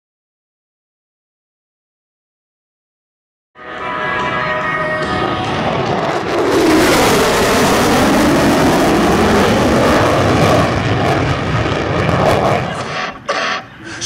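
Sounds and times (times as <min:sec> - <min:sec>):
hollow sweeping jet tone: 0:03.6 - 0:14.0
jet engines flyby roar: 0:03.6 - 0:14.0.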